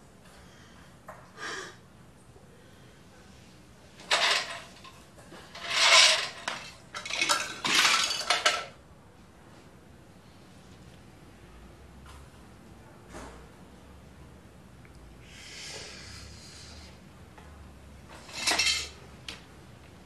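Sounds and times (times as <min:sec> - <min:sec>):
cutlery clattering against bowls: 0:04.0 - 0:08.8, 0:18.1 - 0:19.0.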